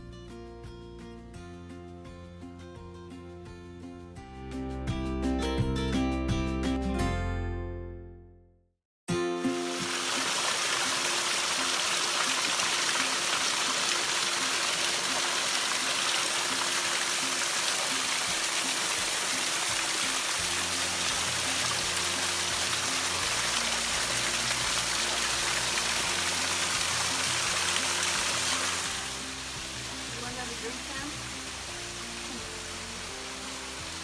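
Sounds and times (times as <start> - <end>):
low bass: 0.0 - 8.6
soft background music: 9.1 - 34.0
waterfall splashing over rocks: 9.5 - 34.0.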